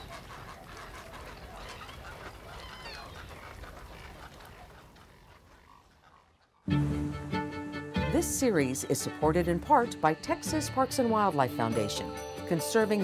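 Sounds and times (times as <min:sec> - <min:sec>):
wading birds calling: 0:00.0 - 0:06.7.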